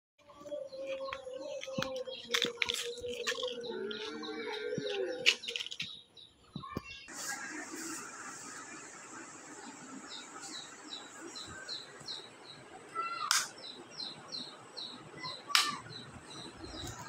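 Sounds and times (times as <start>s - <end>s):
birds chirping: 0.2s - 7.2s, 8.5s - 17.0s
steady hiss: 7.1s - 11.8s.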